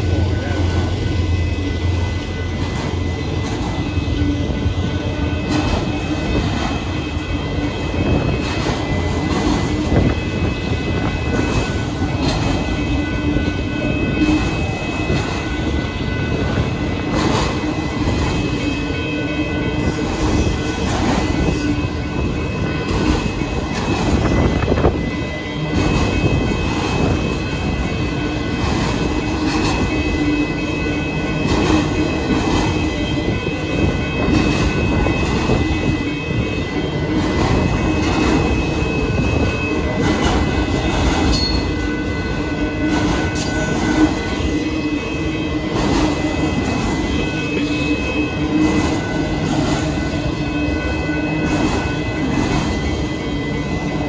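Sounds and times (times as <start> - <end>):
crossing warning bell: 0.0 - 54.0
train wheels rumbling on rail: 0.0 - 54.0
wheels clacking over rail joints: 1.9 - 19.0, 19.8 - 36.0, 39.6 - 44.6.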